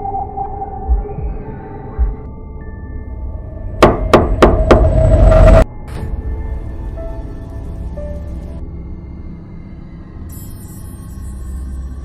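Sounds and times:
droning suspenseful music: 0:00.0 - 0:12.0
low heartbeat-like thuds: 0:00.8 - 0:02.4, 0:03.8 - 0:05.6.

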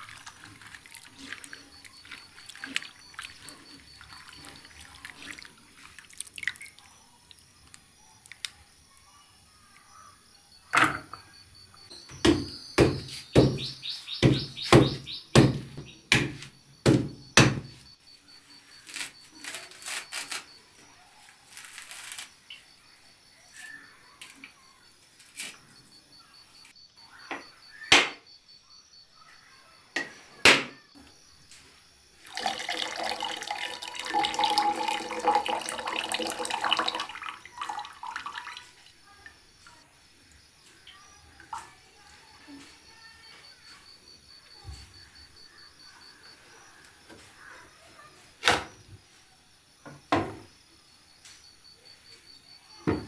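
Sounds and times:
knife striking coconut: 0:12.2 - 0:13.6, 0:14.2 - 0:17.7.

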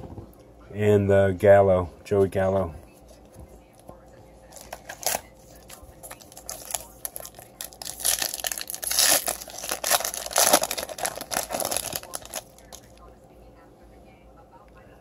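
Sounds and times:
foil wrapper crinkling and tearing: 0:04.5 - 0:12.9.

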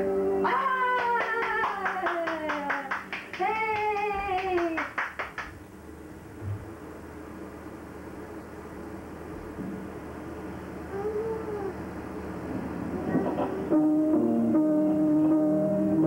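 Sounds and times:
rhythmic hand-clapping: 0:00.5 - 0:05.6.

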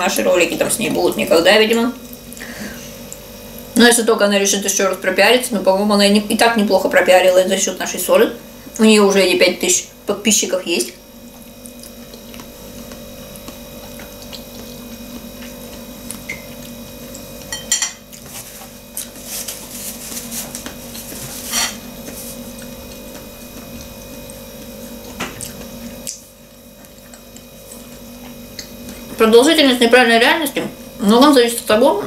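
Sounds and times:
steady low hum: 0:00.0 - 0:32.0
slurping and chewing: 0:11.6 - 0:17.5.

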